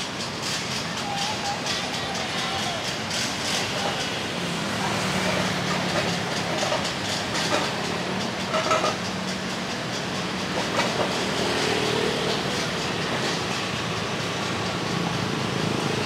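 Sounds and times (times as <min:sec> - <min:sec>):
motorbikes and cars passing: 0:03.4 - 0:09.2, 0:10.9 - 0:13.1.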